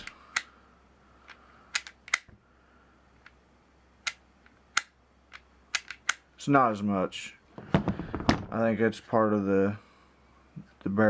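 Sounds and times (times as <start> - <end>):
pistol clicks and taps: 1.3 - 2.4, 4.0 - 6.2.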